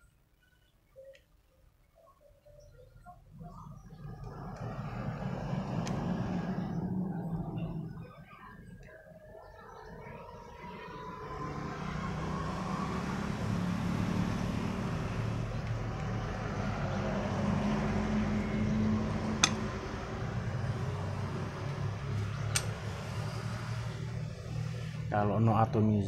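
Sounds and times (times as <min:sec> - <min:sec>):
vehicle engine running: 0:10.0 - 0:25.3.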